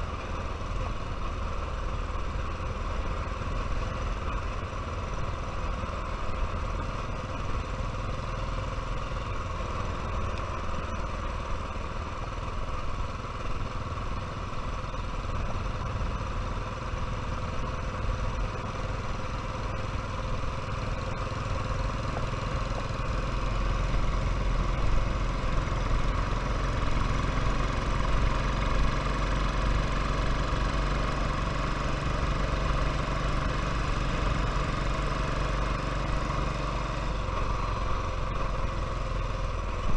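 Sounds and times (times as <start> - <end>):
motorcycle engine running: 0.0 - 39.9.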